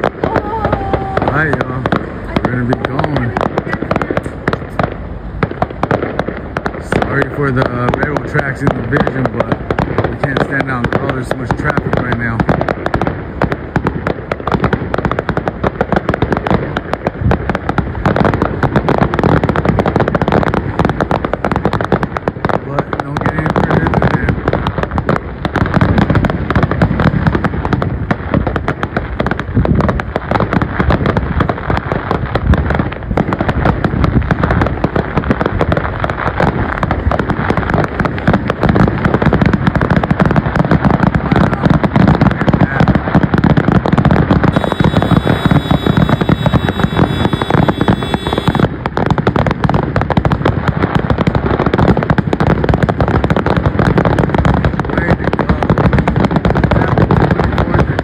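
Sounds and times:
fireworks bangs and crackles: 0:00.0 - 0:58.0
high steady tone: 0:44.6 - 0:48.7.

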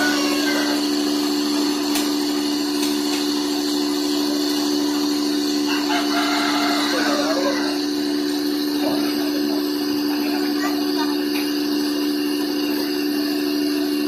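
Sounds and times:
cotton candy machine motor hum: 0:00.0 - 0:14.0.

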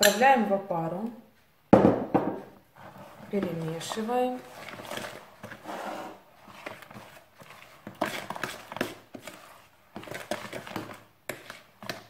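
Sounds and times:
spoon scraping plastic bowl: 0:02.6 - 0:12.0.

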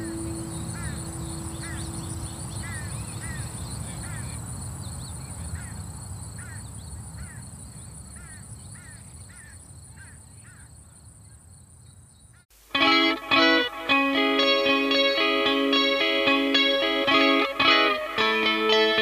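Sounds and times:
thin high whine: 0:00.0 - 0:02.2
birds calling: 0:00.0 - 0:05.8.

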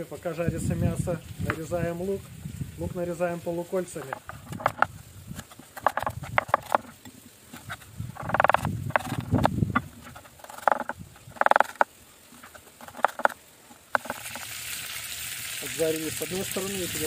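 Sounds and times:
crunchy onion cuts: 0:04.0 - 0:11.8
knife knocking on wooden board: 0:05.8 - 0:06.9, 0:08.2 - 0:09.9, 0:12.9 - 0:13.4.

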